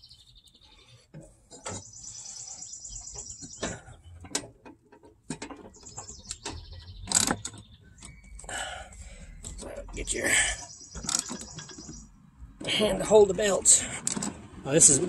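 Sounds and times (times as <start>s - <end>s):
songbird trilling: 1.8s - 3.7s, 5.8s - 8.4s, 9.8s - 12.2s
ratchet clicking and knocking: 3.3s - 8.5s, 10.9s - 12.1s.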